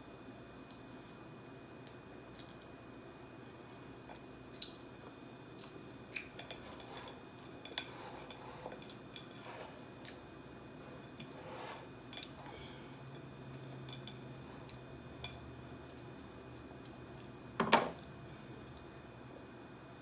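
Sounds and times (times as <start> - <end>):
chewing: 2.3 - 2.8.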